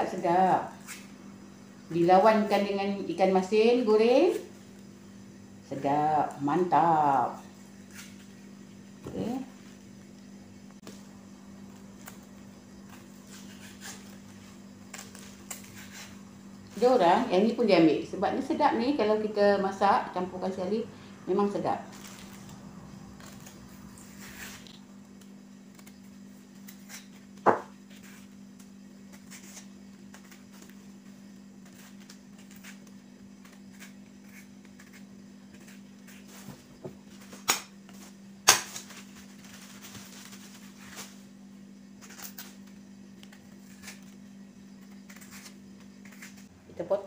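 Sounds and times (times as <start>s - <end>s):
steady low hum: 0.0s - 47.0s
knife scraping banana skin: 12.0s - 17.0s, 22.0s - 36.6s, 42.0s - 46.5s.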